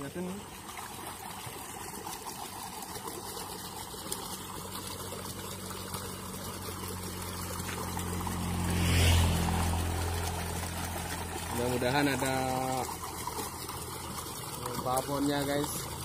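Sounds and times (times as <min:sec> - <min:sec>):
water trickling: 0:00.0 - 0:16.0
low engine hum: 0:00.3 - 0:16.0.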